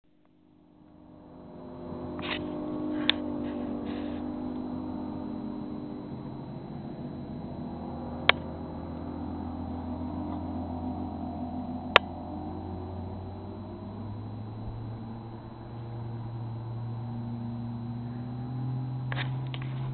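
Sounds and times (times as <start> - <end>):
distant outboard motor droning: 0.1 - 19.9
sharp clicks: 8.2 - 9.0, 11.9 - 12.4.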